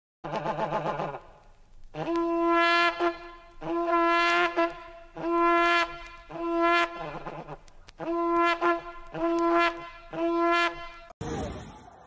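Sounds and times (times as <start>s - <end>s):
horn-like wind instrument blasts: 2.0s - 7.3s, 8.0s - 11.1s.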